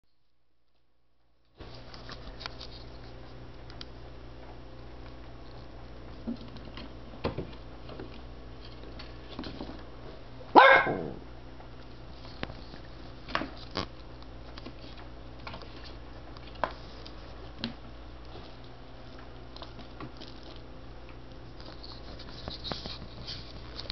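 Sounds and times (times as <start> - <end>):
recorded dog bark from toy: 10.5 - 11.2.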